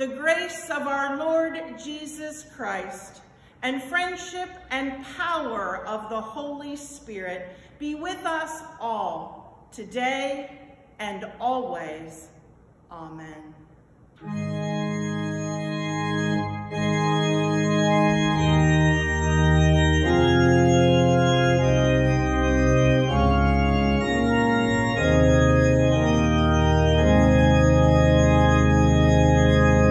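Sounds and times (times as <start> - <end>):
organ playing held chords: 14.2 - 29.9.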